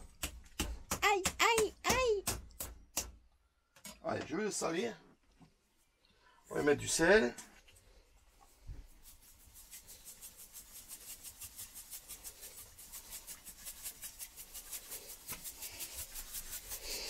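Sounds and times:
salt mill grinding: 9.0s - 17.0s.

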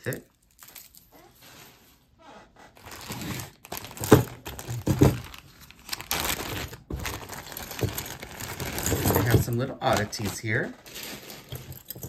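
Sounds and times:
packaging crinkling: 2.8s - 12.0s.

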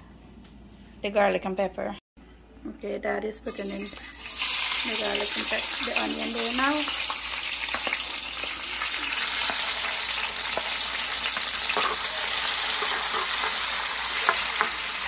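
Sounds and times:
onions sizzling in oil: 3.7s - 15.0s
metal spoon stirring: 9.2s - 14.9s.

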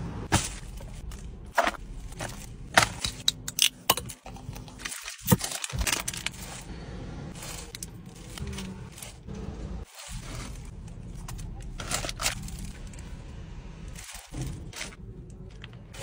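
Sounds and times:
sharp clicks and crunches: 0.4s - 6.7s, 7.3s - 16.0s
paper wrappers crinkling: 4.7s - 13.3s.

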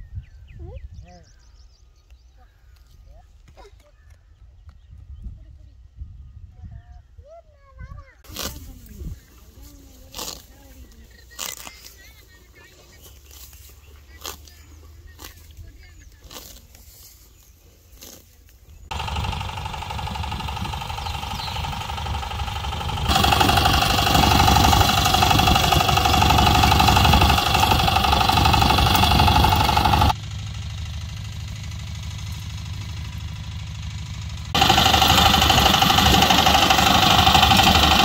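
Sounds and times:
diesel engine knocking under load: 18.9s - 38.0s.

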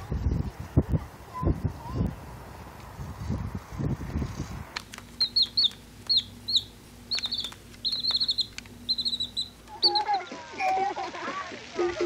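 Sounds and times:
sharp clicks: 4.7s - 10.1s
bird chirping: 5.1s - 10.4s.

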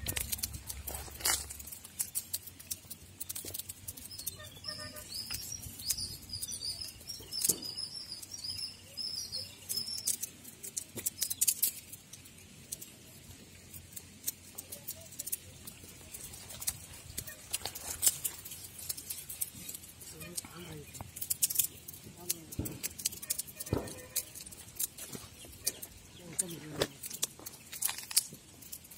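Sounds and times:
bird chirping high calls: 4.0s - 10.2s.

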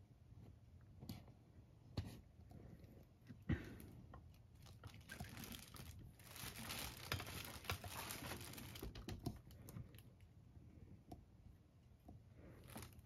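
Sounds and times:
packaging crinkling and rustling: 4.5s - 10.0s, 12.6s - 13.0s
small clicks and knocks: 7.0s - 10.1s.

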